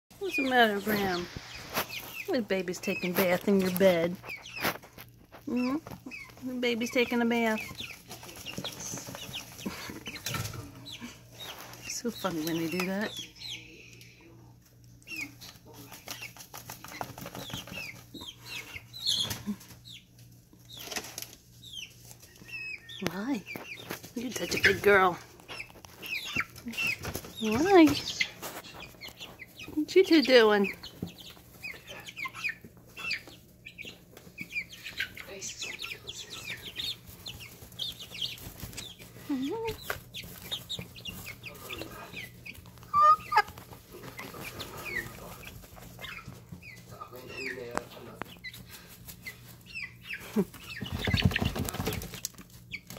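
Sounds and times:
chicks peeping: 0.1 - 52.9
rustle of wood shavings: 0.2 - 5.6
rustling of wood shavings: 0.2 - 13.2, 20.7 - 52.9
chick squawk: 42.9 - 43.6.

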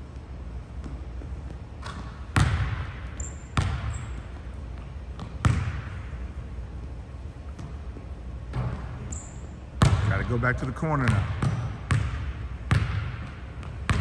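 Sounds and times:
basketball bouncing on hardwood floor: 0.8 - 6.1, 9.8 - 10.2, 11.1 - 14.0.

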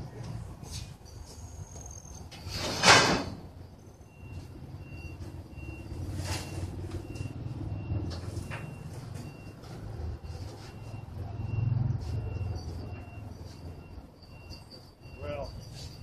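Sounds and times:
sheet-metal scraping and rattling: 2.4 - 3.5.

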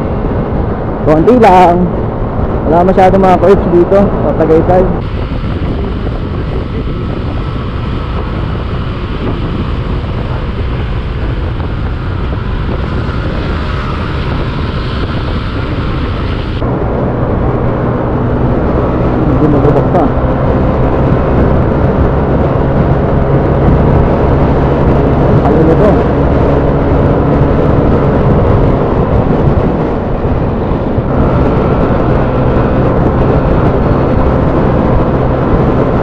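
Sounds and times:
wind and road noise: 0.0 - 36.0.

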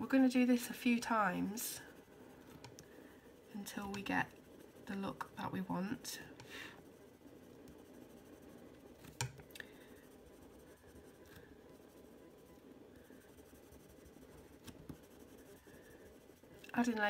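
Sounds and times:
pencil shading on paper: 0.2 - 17.0.

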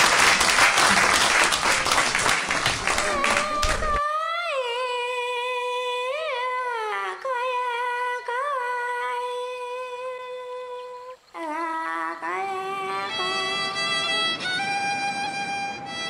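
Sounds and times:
woman humming: 2.9 - 7.8, 9.0 - 14.2.

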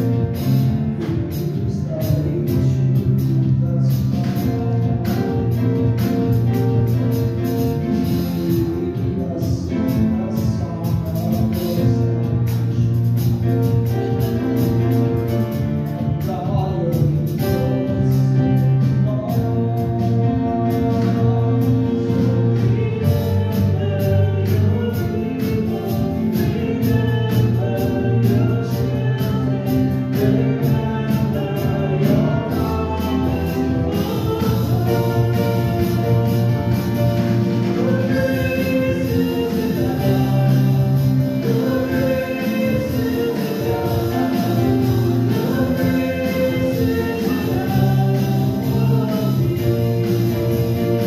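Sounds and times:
instrumental accompaniment: 0.0 - 51.0
voices singing a hymn: 19.7 - 51.0.

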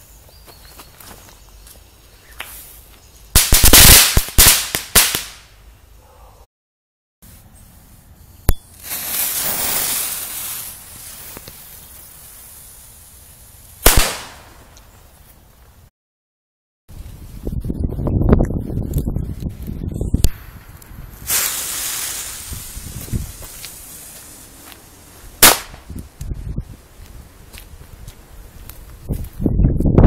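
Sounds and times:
firecracker bangs: 3.4 - 5.4, 8.8 - 10.9, 13.8 - 14.7, 21.2 - 23.6, 25.4 - 25.9.

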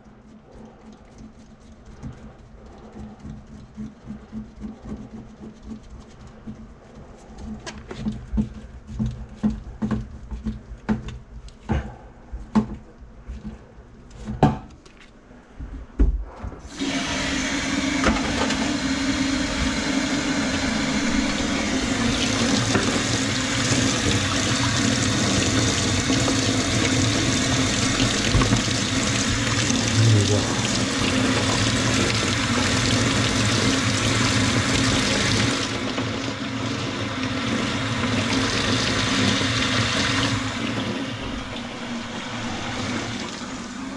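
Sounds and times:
faucet water splashing into sink: 16.7 - 43.7.

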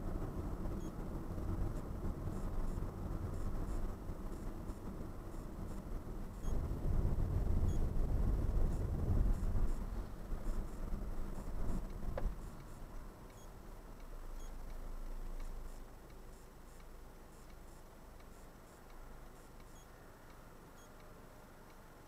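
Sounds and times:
car engine and road rumble: 0.0 - 22.0
click: 19.6 - 21.1.

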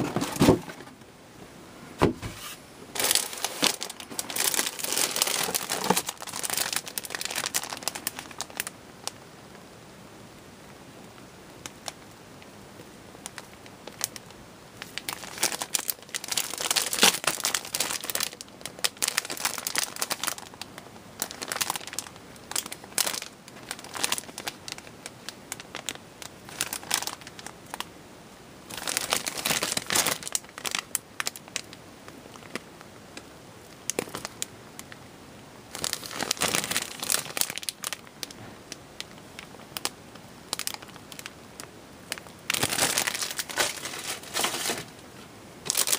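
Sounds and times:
plastic bags crinkling: 0.0 - 0.9, 2.9 - 9.2, 13.2 - 27.9, 28.7 - 31.7, 32.3 - 32.7, 33.8 - 35.0, 35.7 - 45.0, 45.6 - 45.9.

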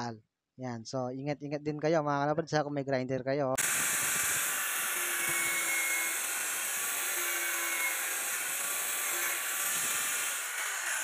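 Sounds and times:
angle grinder cutting plastic pipe: 3.6 - 11.0.

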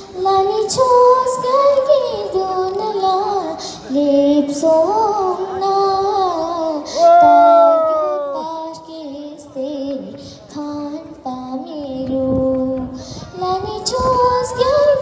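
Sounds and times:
high solo voice singing: 4.0 - 10.0.

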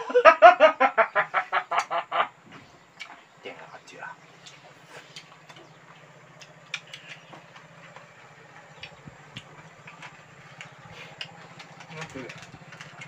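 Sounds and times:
low engine hum: 0.0 - 13.0
chewing mouth clicks and lip smacks: 2.9 - 3.2, 4.2 - 13.0.

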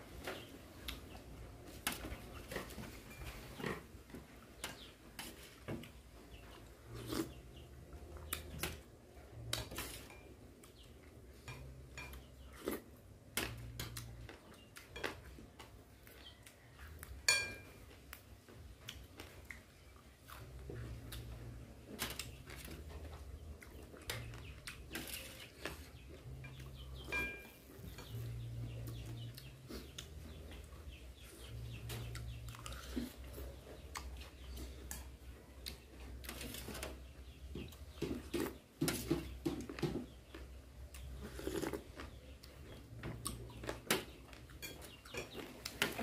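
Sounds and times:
sharp ringing clink: 27.1 - 27.5.

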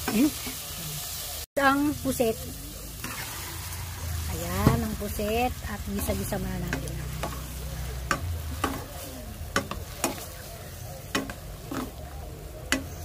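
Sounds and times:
frying sizzle: 0.0 - 13.0
spatula scraping a pan: 3.0 - 3.6.

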